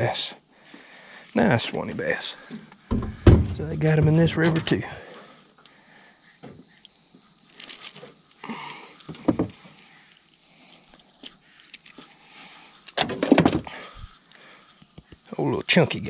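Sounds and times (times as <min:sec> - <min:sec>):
hooks and lure clicking: 0:06.7 - 0:12.2.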